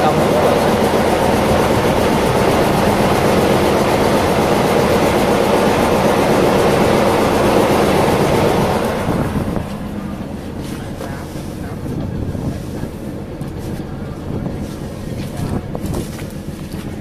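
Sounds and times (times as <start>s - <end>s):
boat engine running: 0.0s - 17.0s.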